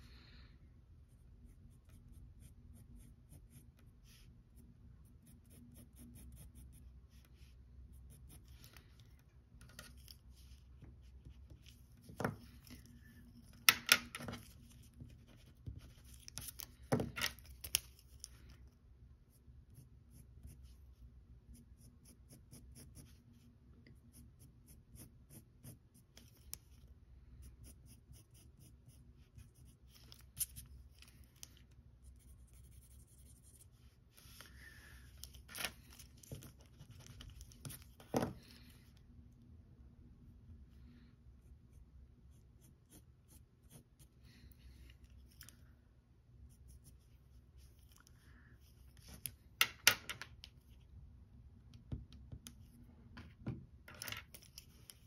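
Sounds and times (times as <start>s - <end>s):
pencil scratching on paper: 1.1s - 8.8s, 19.3s - 26.8s, 27.4s - 34.4s, 42.3s - 44.2s.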